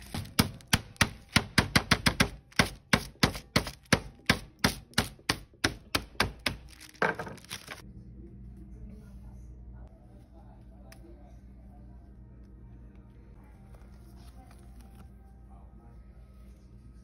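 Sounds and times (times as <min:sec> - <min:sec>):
meat mallet pounding beef: 0:00.0 - 0:06.8.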